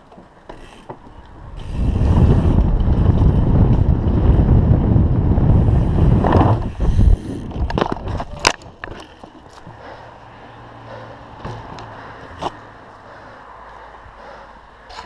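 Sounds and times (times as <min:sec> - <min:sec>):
wind buffeting microphone: 0:01.2 - 0:09.0.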